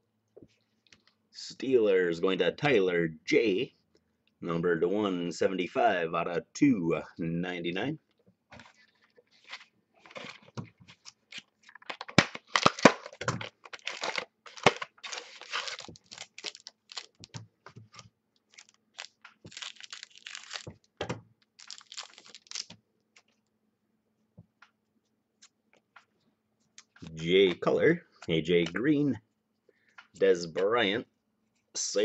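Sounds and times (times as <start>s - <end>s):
wrapper tearing and crinkling: 9.4s - 17.4s, 18.4s - 20.7s, 21.4s - 22.8s.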